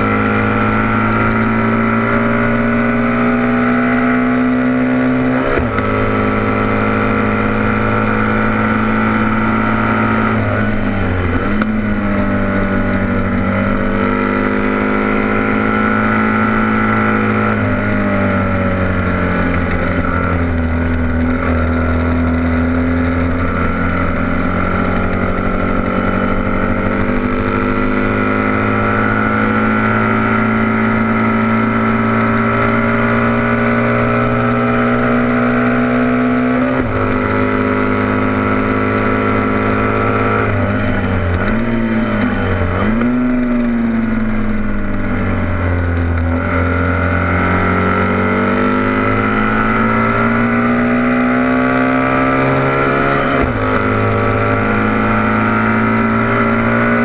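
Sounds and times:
motorcycle engine at high revs: 0:00.0 - 0:57.0.

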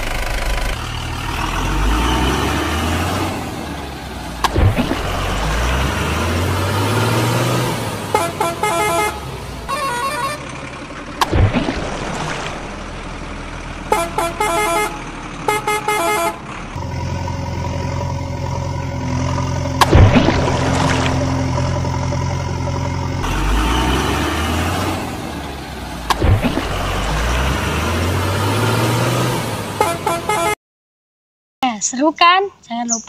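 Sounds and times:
heavy truck engine running: 0:00.0 - 0:30.5
truck horn honking: 0:07.6 - 0:10.6, 0:13.8 - 0:17.2, 0:29.7 - 0:30.6
water splashes: 0:11.2 - 0:13.9, 0:17.9 - 0:28.7.

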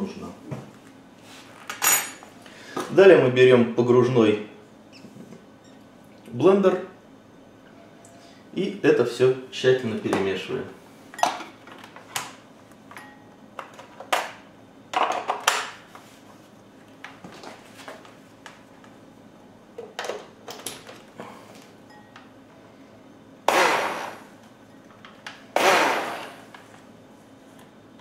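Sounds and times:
blender burst: 0:23.4 - 0:24.3, 0:25.5 - 0:26.5.

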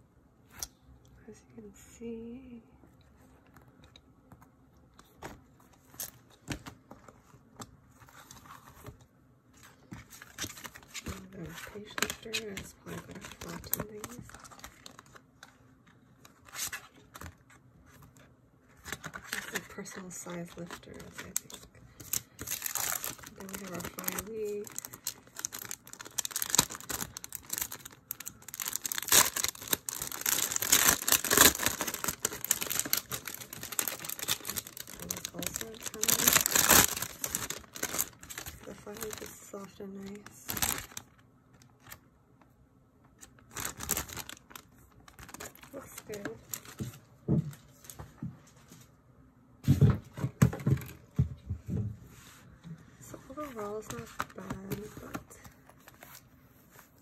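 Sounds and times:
plastic bag crinkling: 0:10.2 - 0:15.6, 0:18.8 - 0:41.2, 0:43.2 - 0:47.0
paper rustling: 0:16.2 - 0:39.4.

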